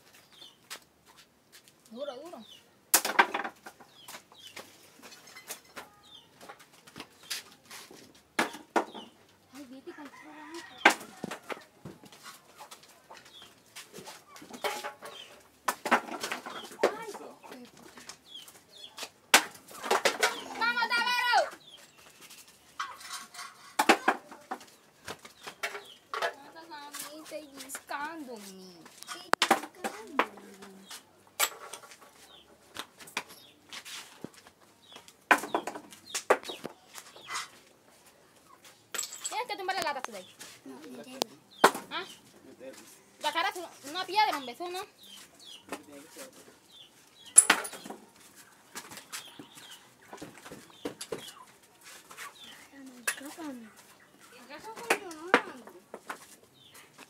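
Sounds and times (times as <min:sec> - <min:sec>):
birds chirping: 0:00.0 - 0:00.8, 0:01.9 - 0:02.8, 0:03.4 - 0:07.6, 0:08.4 - 0:57.0
sharp knocks and clatters: 0:03.0 - 0:06.7, 0:14.4 - 0:17.3, 0:19.3 - 0:20.5, 0:22.8 - 0:26.4, 0:35.3 - 0:37.5, 0:47.3 - 0:48.1
chickens clucking: 0:08.4 - 0:19.0, 0:22.6 - 0:26.6, 0:34.8 - 0:38.9, 0:43.6 - 0:55.2.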